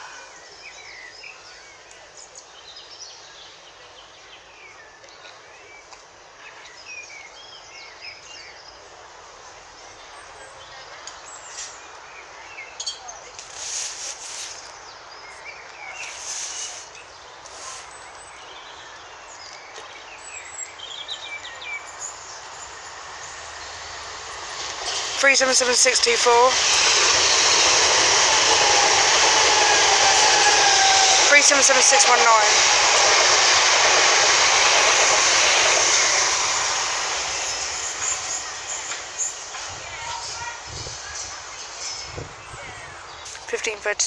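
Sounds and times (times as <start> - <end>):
steady outdoor hiss: 0.0 - 44.0
small birds chirping: 9.8 - 44.0
train wheels rushing on rails: 15.6 - 44.0.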